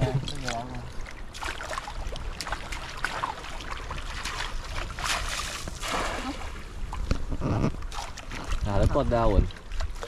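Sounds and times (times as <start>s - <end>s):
sea water sloshing around waders: 0.0s - 10.0s
cast net splashing on water: 1.3s - 6.6s
small splash: 1.3s - 6.6s, 7.9s - 10.0s.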